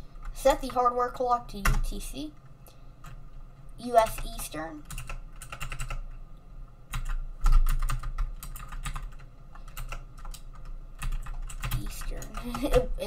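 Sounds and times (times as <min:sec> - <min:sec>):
keyboard keys clicking: 0:04.0 - 0:06.1, 0:06.9 - 0:13.0.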